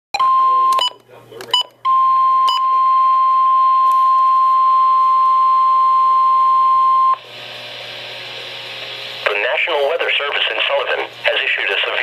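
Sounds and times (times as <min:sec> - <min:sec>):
weather radio alarm beep: 0:00.2 - 0:01.0, 0:01.9 - 0:07.2
broadcast static hiss: 0:09.2 - 0:12.0.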